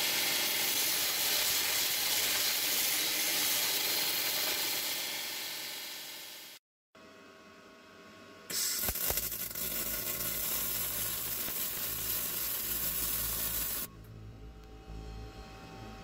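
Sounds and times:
blast nozzle hissing: 0.0s - 6.6s, 8.5s - 13.9s.

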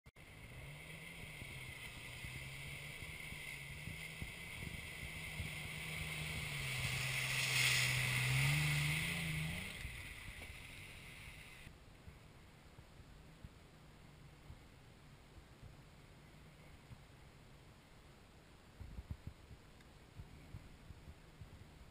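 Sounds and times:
motorboat engine passing: 0.2s - 11.7s.

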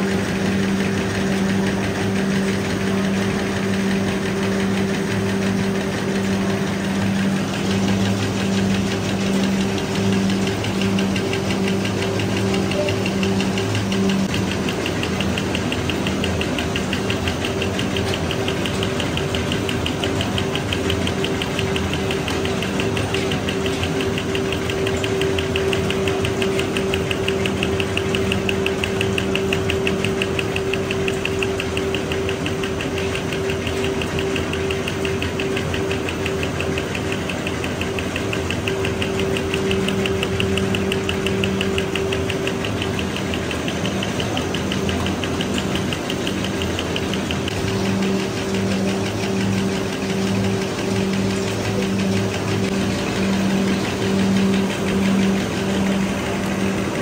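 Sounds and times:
machine humming and ticking: 0.0s - 57.0s.

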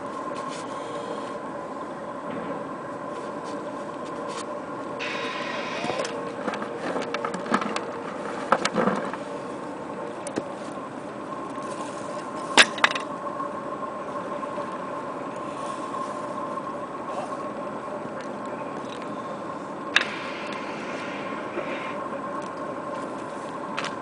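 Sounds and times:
outboard motor running: 5.0s - 22.0s.

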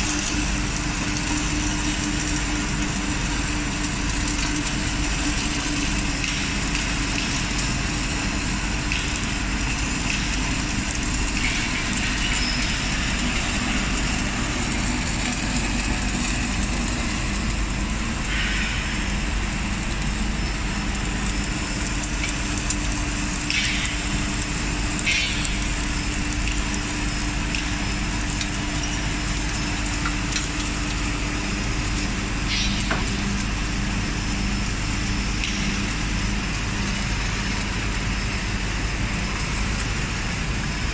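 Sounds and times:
welding machine hum: 0.0s - 40.9s.

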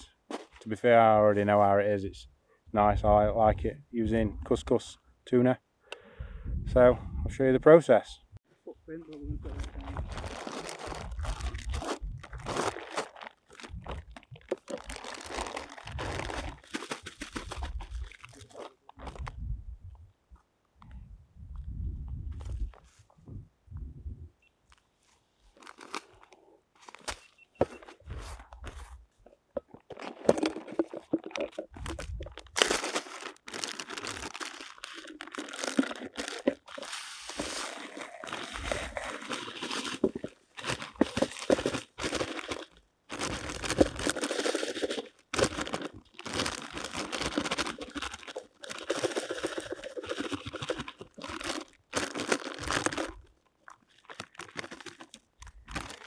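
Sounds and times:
plastic bag crinkling: 9.5s - 19.3s, 25.6s - 27.2s, 29.6s - 56.0s.

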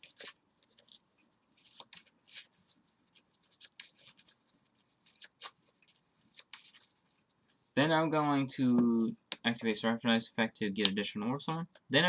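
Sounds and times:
cards rubbing together: 0.0s - 7.6s.

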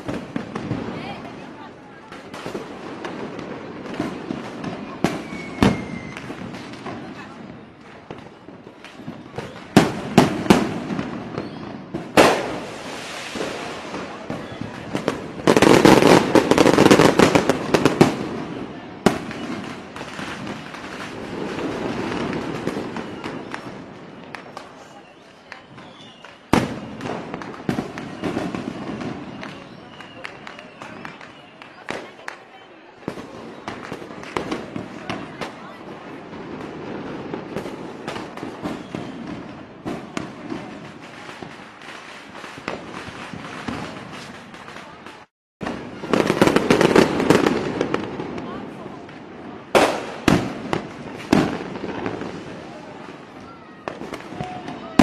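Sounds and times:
fireworks crackling: 0.0s - 55.0s
sharp firework bang: 12.0s - 16.3s, 49.7s - 51.6s.

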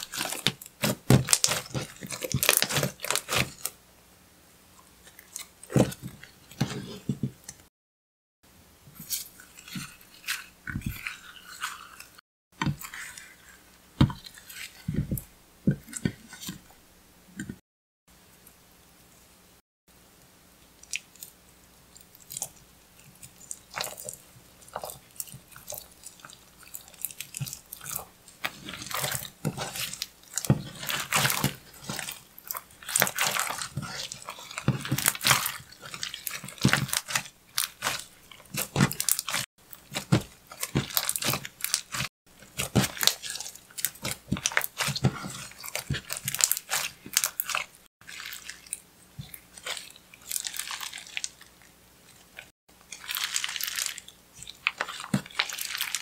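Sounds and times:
slime crackling and popping: 0.0s - 3.7s, 23.2s - 51.6s, 52.4s - 56.0s.

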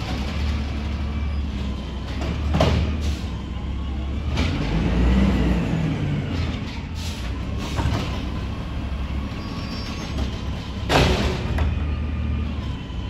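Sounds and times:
truck engine rumbling: 0.0s - 13.0s.

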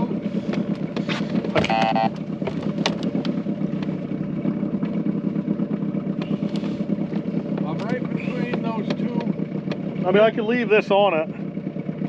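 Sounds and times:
boat motor idling: 0.0s - 12.0s
short electronic beep: 1.6s - 2.2s.

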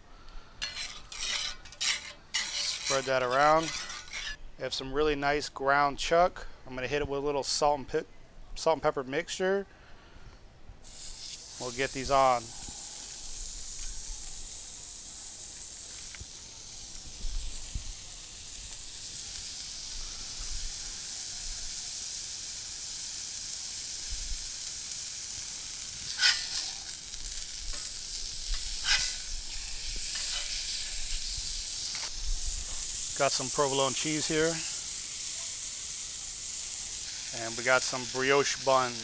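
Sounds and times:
burger patties sizzling: 0.6s - 4.4s, 10.8s - 39.0s
metal spatula scraping griddle: 0.6s - 4.4s, 26.1s - 34.8s.

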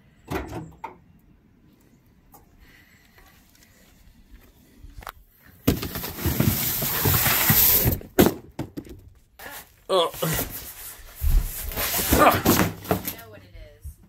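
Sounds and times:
box knocking down: 5.6s - 8.9s, 11.8s - 13.2s
cardboard box scraping on truck bed: 5.7s - 8.1s, 10.3s - 13.2s.

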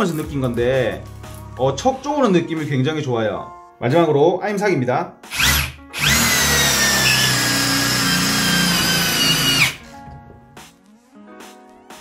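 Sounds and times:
cordless drill motor whine: 5.3s - 9.9s.

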